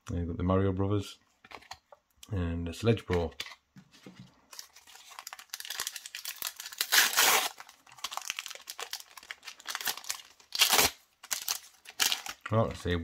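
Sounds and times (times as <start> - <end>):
wrapper tearing and crinkling: 4.5 - 12.6.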